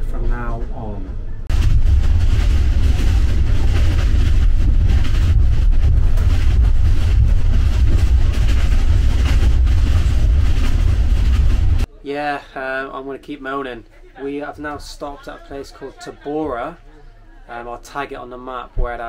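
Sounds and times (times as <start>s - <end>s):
train rumbling and rattling: 0.0s - 11.9s.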